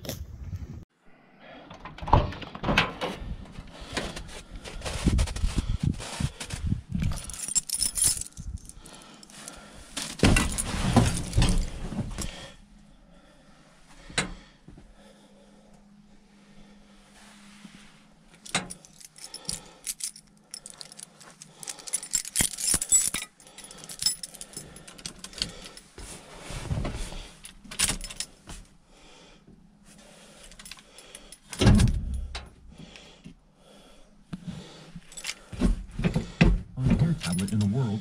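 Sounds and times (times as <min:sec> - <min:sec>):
steady low hum: 0:03.2 - 0:38.0
keys jangling: 0:07.0 - 0:09.6, 0:10.2 - 0:12.3, 0:18.4 - 0:25.9, 0:27.4 - 0:28.5, 0:30.4 - 0:32.5, 0:35.0 - 0:35.5, 0:37.2 - 0:37.8
rustling and knocks from handling: 0:10.0 - 0:12.3.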